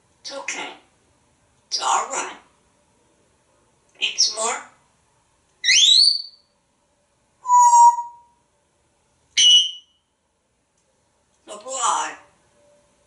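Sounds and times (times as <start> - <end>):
parrot whistling: 5.6 - 6.4, 7.4 - 8.3, 9.4 - 9.9.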